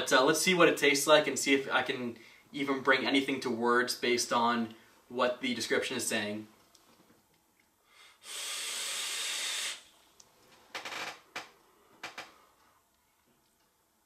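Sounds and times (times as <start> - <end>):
breathy exhales: 7.9 - 9.9
vape hiss of air: 8.0 - 10.0.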